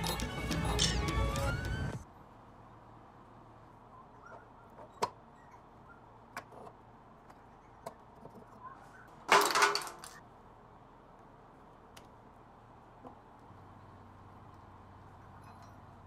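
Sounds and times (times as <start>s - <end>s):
metal parts clattering: 9.3s - 10.2s.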